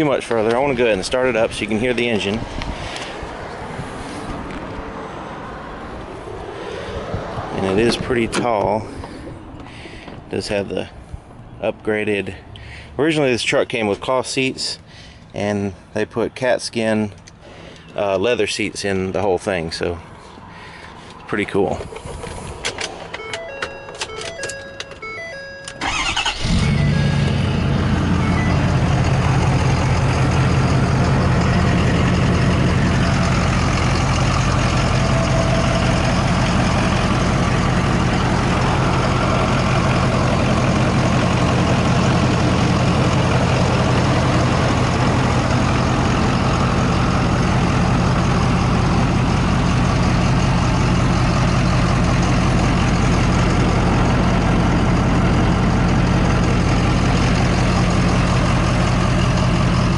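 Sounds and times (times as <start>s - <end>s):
diesel truck engine idling: 0.0s - 13.2s, 21.8s - 59.9s
short beeps: 23.2s - 25.8s, 28.2s - 28.7s.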